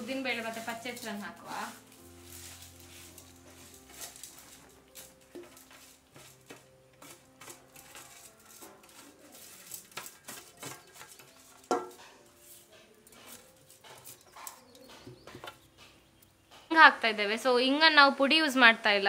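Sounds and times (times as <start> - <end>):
grains pouring: 0.0 - 11.2
steel plate scraping on stone: 0.1 - 15.6.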